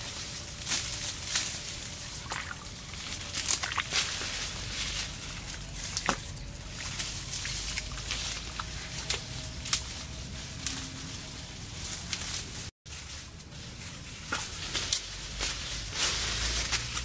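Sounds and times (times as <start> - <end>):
leafy branches rustling: 0.0 - 17.0
bare feet squelching in mud: 2.0 - 4.7.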